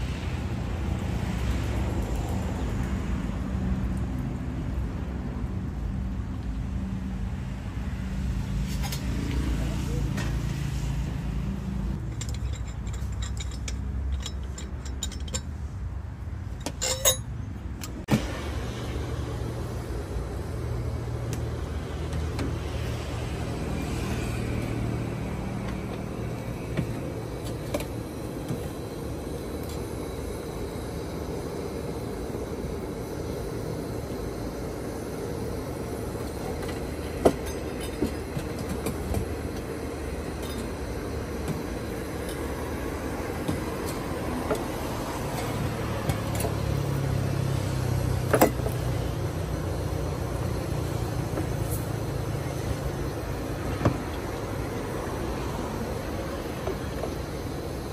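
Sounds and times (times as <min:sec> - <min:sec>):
steady low rumble: 0:11.0 - 0:23.8, 0:24.5 - 0:47.4
coffee gear clinking and knocking: 0:12.0 - 0:15.6, 0:16.6 - 0:17.3, 0:36.2 - 0:42.6, 0:48.3 - 0:48.8.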